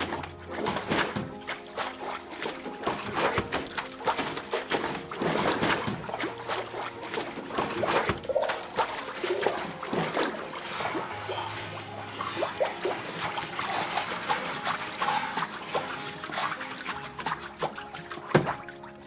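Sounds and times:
water dripping: 0.0 - 19.0
water splashing and sloshing: 0.0 - 19.0.

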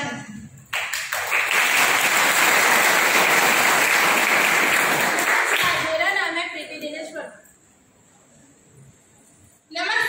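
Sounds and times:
audience applauding: 0.7 - 5.8.

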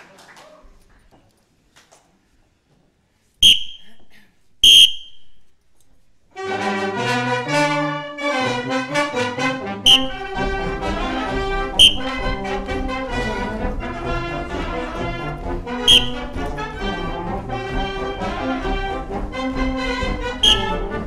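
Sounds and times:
shrill whistle blasts: 3.4 - 5.5, 9.8 - 10.5, 11.7 - 12.5, 15.8 - 17.4, 20.3 - 21.0
brass band playing: 6.3 - 21.0.

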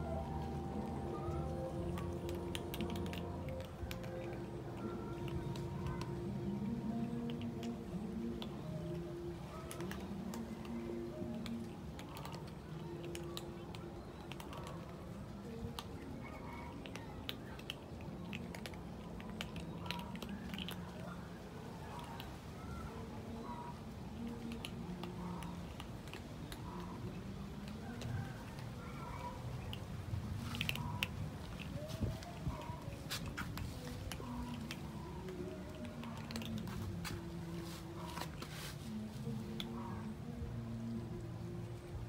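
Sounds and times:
cats crunching dry kibble: 1.6 - 6.2, 24.2 - 39.7.

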